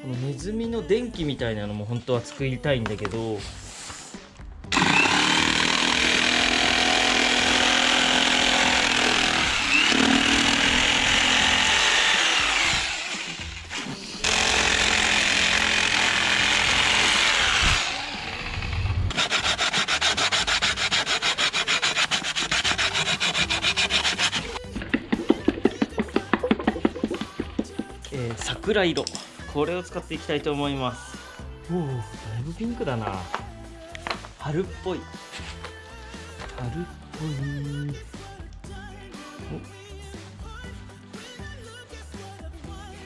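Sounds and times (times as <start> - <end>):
jigsaw cutting plywood: 4.7 - 27.9.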